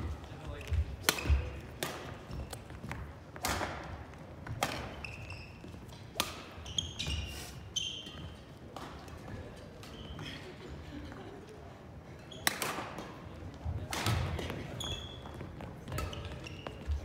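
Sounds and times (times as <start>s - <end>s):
rackets hitting shuttlecock: 1.0s - 7.3s, 12.4s - 14.8s
shoes squeaking on hardwood floor: 4.7s - 8.7s, 9.8s - 10.4s, 14.5s - 17.0s.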